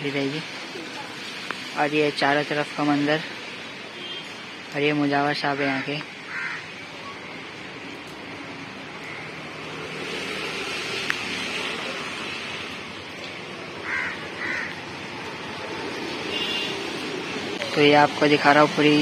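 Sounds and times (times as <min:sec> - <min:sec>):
road traffic hum: 0:00.0 - 0:19.0
crow cawing: 0:06.2 - 0:06.8, 0:09.0 - 0:09.4, 0:13.8 - 0:15.0.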